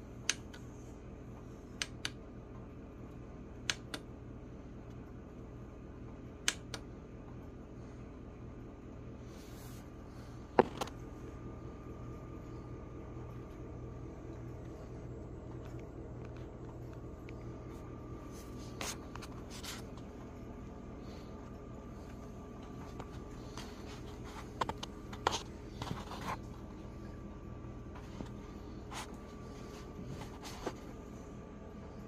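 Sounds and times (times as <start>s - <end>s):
low electrical hum: 0.0s - 32.0s.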